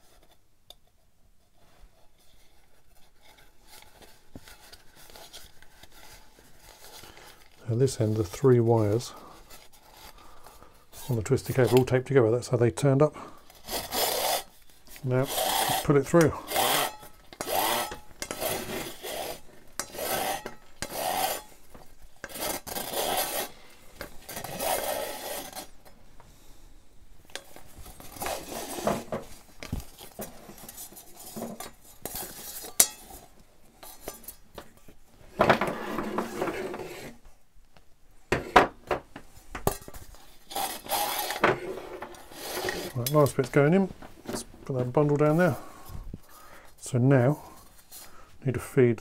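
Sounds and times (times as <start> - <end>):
cable scraping through metal: 13.5 - 25.8, 27.4 - 33.0, 39.7 - 43.8
metal lamp parts clinking: 32.6 - 33.2.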